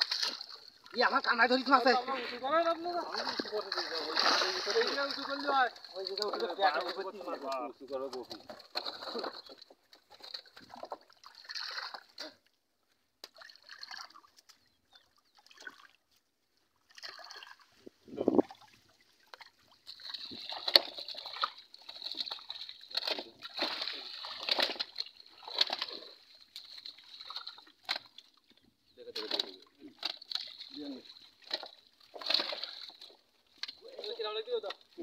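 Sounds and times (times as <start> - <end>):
fish splashing in water: 0.0 - 0.9, 3.0 - 6.4, 8.3 - 12.2, 13.2 - 16.0, 16.8 - 17.7, 18.4 - 28.5, 29.1 - 35.0.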